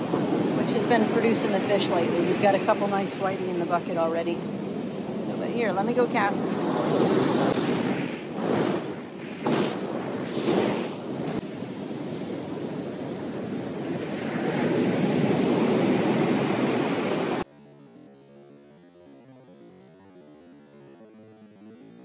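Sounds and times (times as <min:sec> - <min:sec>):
wind on microphone: 0:00.0 - 0:17.4
ocean surf washing up: 0:00.0 - 0:17.5.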